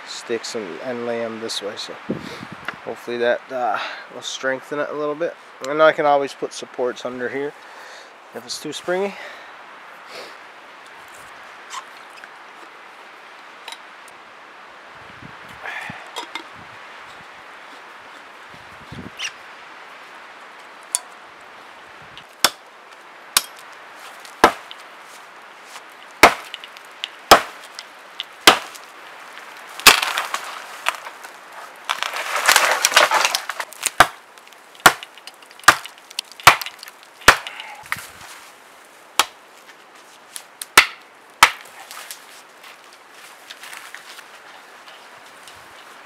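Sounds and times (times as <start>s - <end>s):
crackling and rustling: 16.2s - 46.0s
axe chopping wood: 22.4s - 22.6s, 23.4s - 23.6s, 24.4s - 24.8s, 26.2s - 26.7s, 27.3s - 27.7s, 28.4s - 28.8s, 29.8s - 31.1s, 32.0s - 34.2s, 34.8s - 37.7s, 39.2s - 39.4s, 40.8s - 41.7s.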